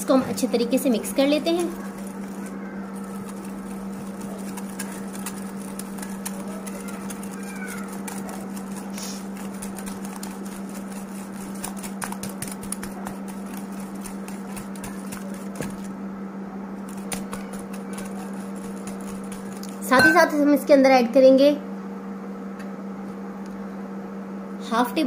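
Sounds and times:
wire whisk beating in glass bowl: 0.0s - 15.9s, 16.9s - 20.4s
steady low hum: 0.0s - 25.0s.

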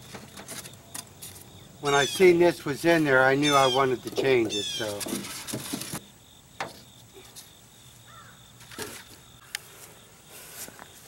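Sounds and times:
high insect drone: 0.0s - 11.0s
knocks and scrapes in boat hull: 4.0s - 6.0s.

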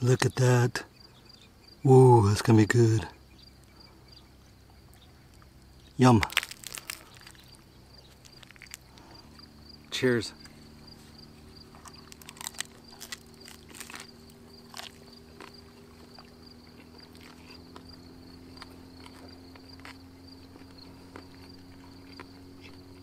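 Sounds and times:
faint low hum: 0.0s - 23.0s
pulsing insect trill: 0.0s - 23.0s
person chewing crunchy food: 6.3s - 9.6s, 10.9s - 23.0s.

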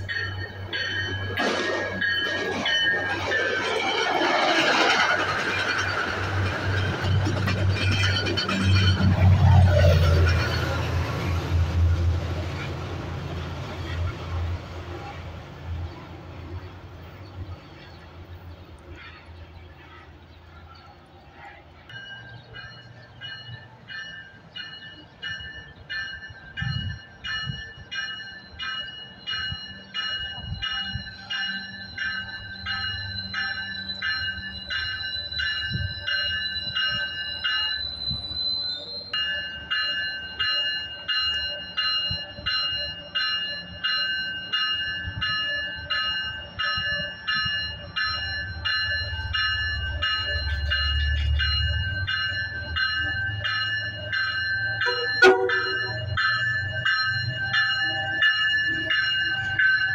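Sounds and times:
train bell ringing: 0.0s - 19.8s, 20.7s - 59.9s
train low rumble: 0.0s - 59.9s.

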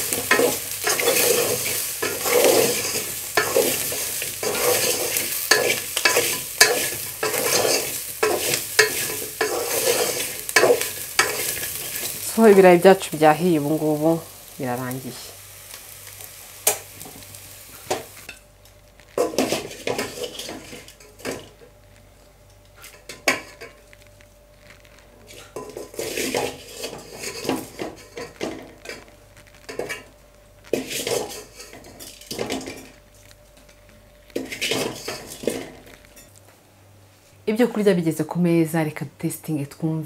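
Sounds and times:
wooden spatula scraping metal pot: 0.0s - 12.6s, 19.2s - 21.6s, 24.6s - 30.1s, 30.7s - 33.0s, 34.3s - 36.4s
hot oil sizzling: 0.0s - 37.9s.

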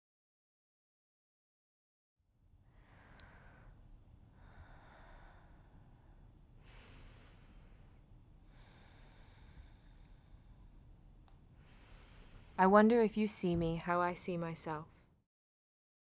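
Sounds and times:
low steady hum: 2.4s - 15.2s
faint slow breathing: 2.6s - 12.6s.

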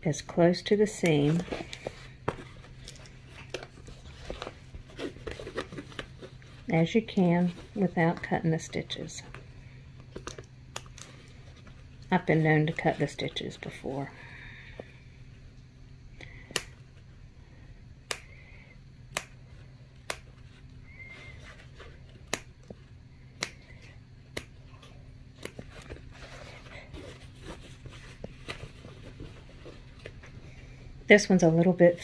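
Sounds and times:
scissors snipping fabric: 19.1s - 19.4s, 20.0s - 20.3s.

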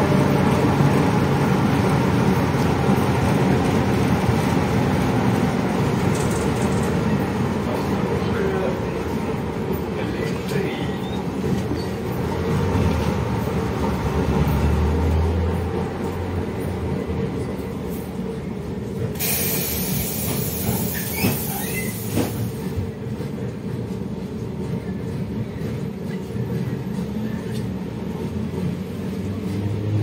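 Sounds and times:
bus engine low drone: 0.0s - 8.7s, 11.4s - 30.0s
loud hiss: 19.2s - 22.2s.

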